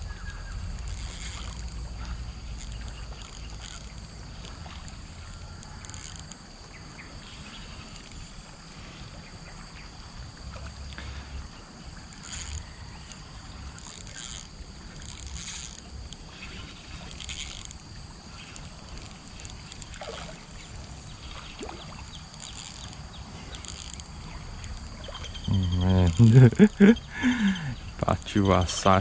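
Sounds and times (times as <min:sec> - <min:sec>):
outdoor ambience: 0:00.0 - 0:29.0.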